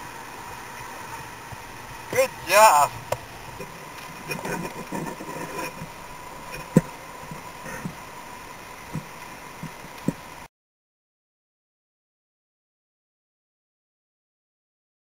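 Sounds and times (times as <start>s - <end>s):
faint steady whine: 0.0s - 10.5s
water washing against kayak hull: 0.0s - 10.5s.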